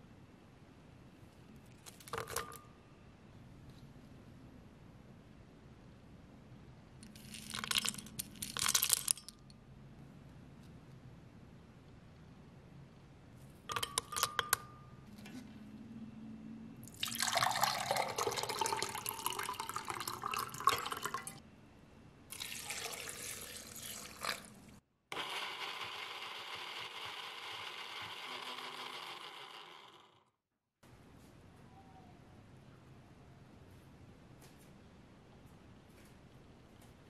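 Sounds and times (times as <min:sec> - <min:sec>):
nuts clinking into glass jug: 0:07.0 - 0:09.4
water pouring into glass: 0:16.9 - 0:21.4, 0:22.3 - 0:24.6
blender whirring: 0:25.1 - 0:30.3.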